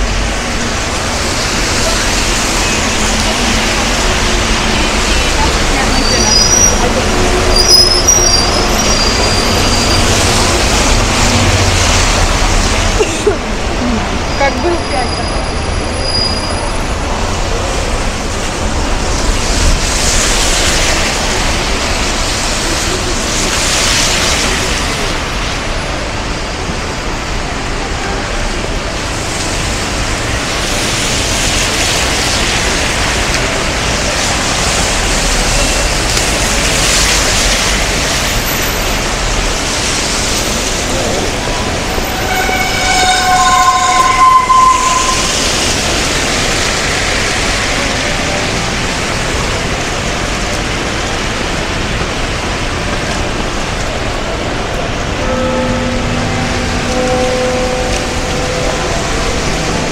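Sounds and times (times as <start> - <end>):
rain on wet road: 0.0 - 59.9
steady traffic: 0.0 - 59.9
two-note vehicle warning tone: 55.2 - 59.8.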